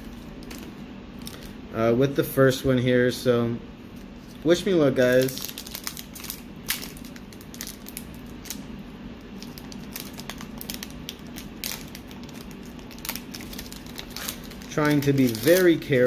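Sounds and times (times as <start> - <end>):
foil wrapper crinkling: 5.0 - 8.7, 9.3 - 16.0.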